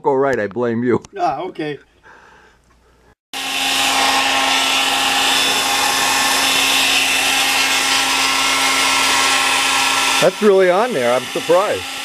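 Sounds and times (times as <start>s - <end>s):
hair dryer running: 3.4s - 12.0s.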